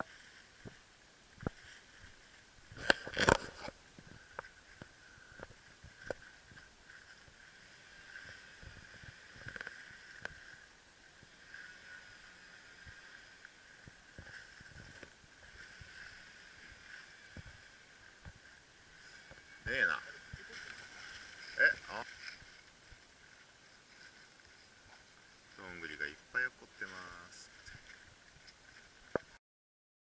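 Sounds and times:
brush of vegetation: 0.0s - 10.7s.

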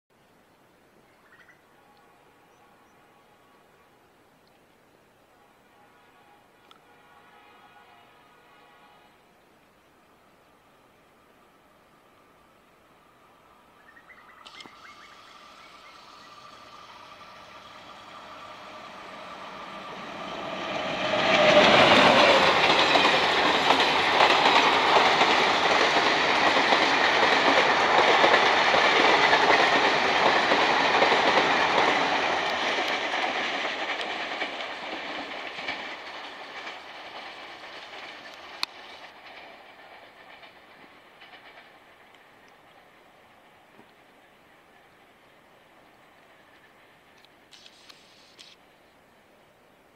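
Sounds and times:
diesel locomotive engine passing: 10.2s - 47.5s
train wheels on rails: 12.7s - 48.7s.

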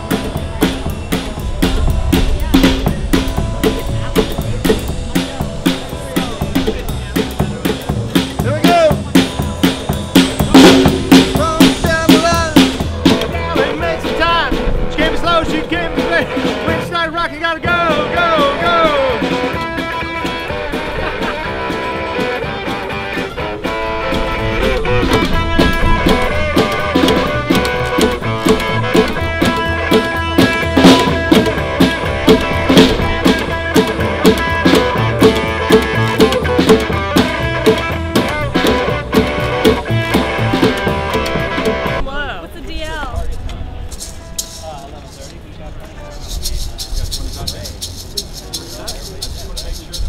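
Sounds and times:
upright bass: 0.0s - 50.0s
electric guitar: 17.6s - 42.2s.

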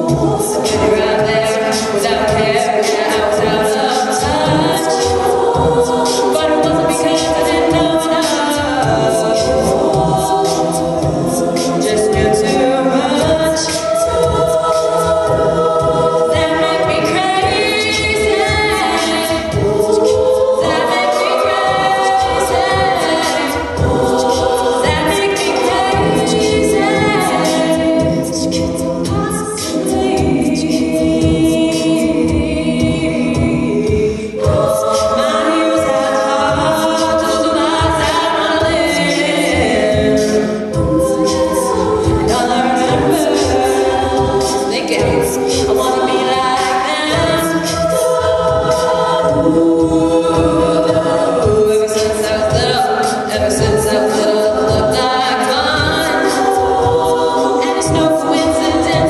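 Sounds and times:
steady beat: 0.0s - 59.0s
women singing a cappella: 0.0s - 59.0s.

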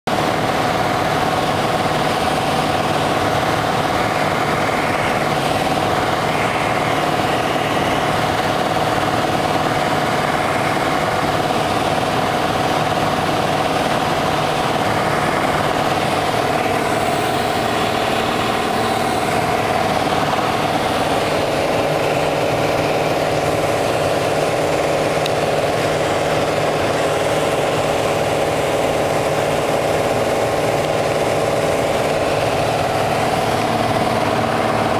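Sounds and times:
propeller engine droning: 0.1s - 34.9s
rush of air noise: 0.1s - 34.9s.

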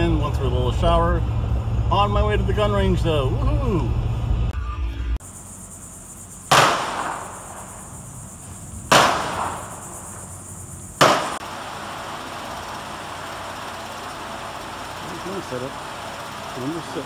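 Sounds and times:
gunshots with echo: 6.5s - 7.9s, 8.9s - 10.0s, 11.0s - 11.4s.

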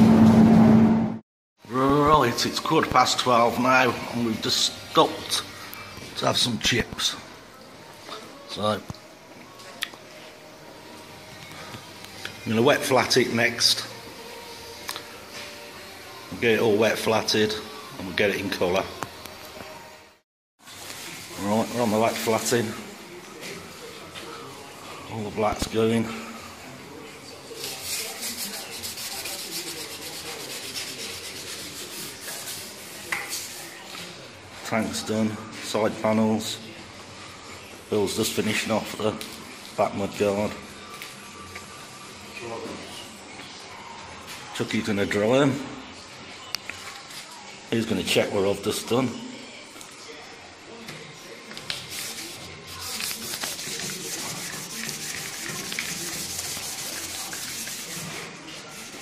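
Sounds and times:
wet sandpaper scrubbing: 27.6s - 33.7s, 51.8s - 59.0s
abrasive paper rubbing on panels: 27.6s - 33.9s, 51.6s - 59.0s.

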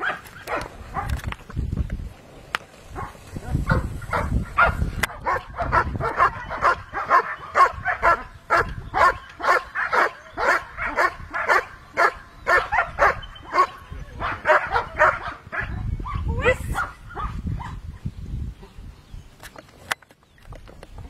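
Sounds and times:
dog barking rhythmically: 3.7s - 15.8s.

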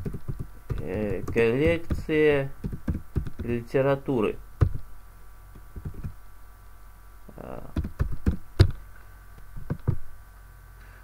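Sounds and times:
keyboard typing: 0.0s - 3.6s, 4.6s - 4.8s, 5.6s - 6.2s, 7.7s - 8.8s.

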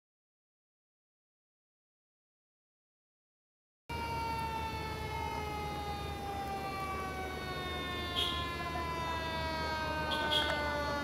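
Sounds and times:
engine rumble: 3.9s - 11.0s
fire engine siren: 3.9s - 11.0s.

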